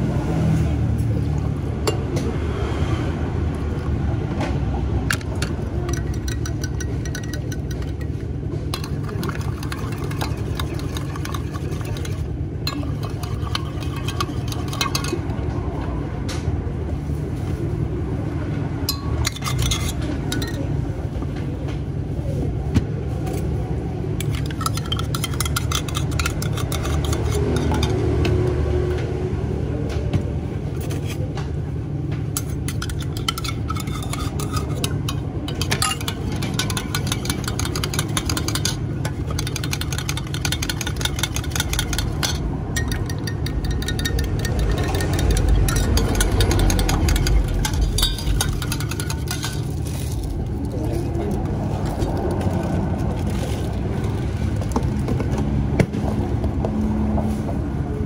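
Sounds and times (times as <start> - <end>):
low machine hum: 0.7 - 57.0
metal spoons clinking in cups: 1.8 - 2.2, 5.0 - 15.4, 18.9 - 20.8, 24.2 - 28.4, 32.4 - 50.8.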